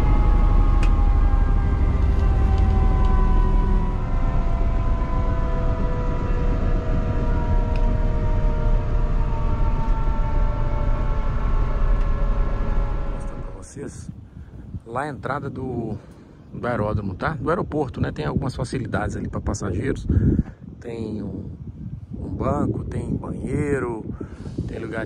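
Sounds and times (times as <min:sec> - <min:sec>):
helicopter engine whine winding down: 0:00.0 - 0:14.0
heavy low rumble: 0:00.0 - 0:25.0.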